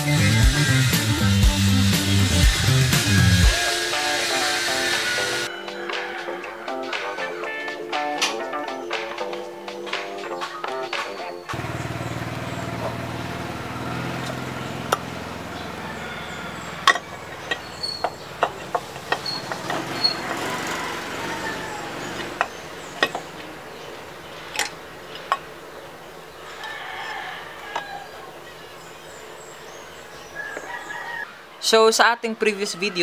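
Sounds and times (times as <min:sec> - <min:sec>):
rooster crowing: 0:02.6 - 0:07.6, 0:11.5 - 0:24.1, 0:26.3 - 0:29.3, 0:30.1 - 0:31.5, 0:32.5 - 0:33.0
metal parts clicking and tapping: 0:16.8 - 0:20.2, 0:24.4 - 0:25.5.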